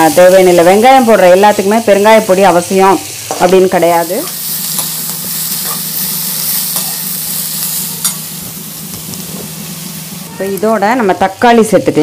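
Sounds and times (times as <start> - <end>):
vegetables sizzling in oil: 0.0 - 12.0
metal ladle scraping a pan: 4.2 - 8.4.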